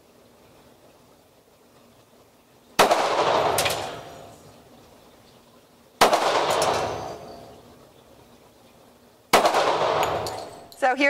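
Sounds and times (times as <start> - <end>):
pistol shots ringing indoors: 2.8 - 4.1, 6.0 - 7.2, 9.3 - 10.5.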